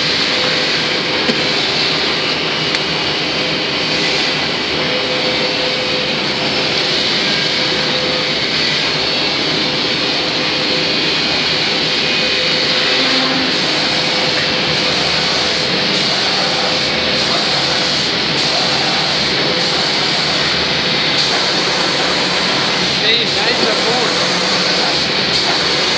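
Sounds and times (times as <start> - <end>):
compressed air spray hissing: 12.5 - 25.9.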